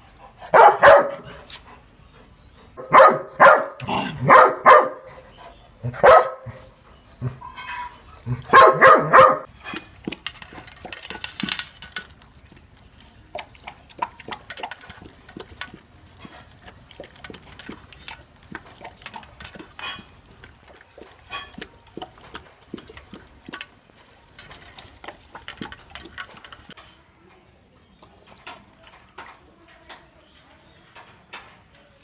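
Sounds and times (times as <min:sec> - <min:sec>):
dog barking: 0:00.5 - 0:01.3, 0:02.8 - 0:05.1, 0:05.9 - 0:06.7, 0:08.5 - 0:09.5
dog eating from metal bowl: 0:07.5 - 0:27.0.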